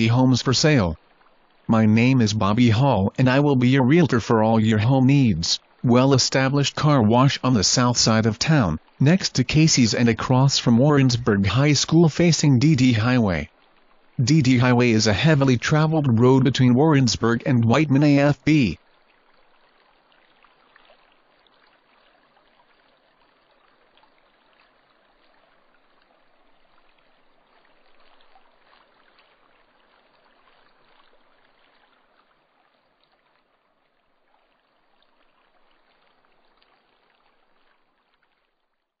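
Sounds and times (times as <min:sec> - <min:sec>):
faint steady hiss: 0:00.0 - 0:38.9.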